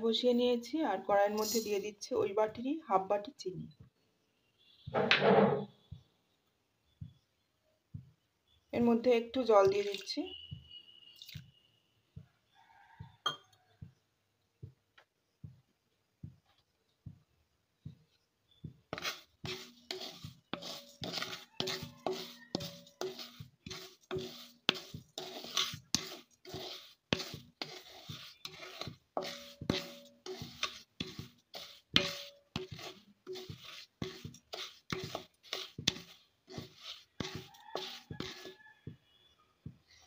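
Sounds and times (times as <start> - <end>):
wooden spatula scraping pan: 18.5 - 40.0.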